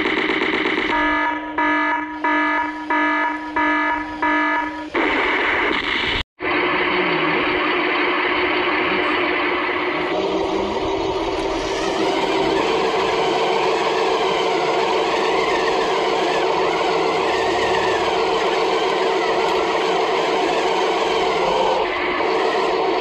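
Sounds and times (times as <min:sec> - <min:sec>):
model tank engine sound: 0:06.4 - 0:23.0.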